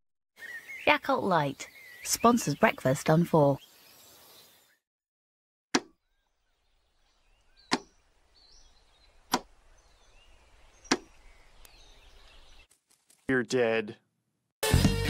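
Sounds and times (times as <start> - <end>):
faint outdoor ambience: 6.4 - 12.7
sharp thwacks: 10.9 - 11.1.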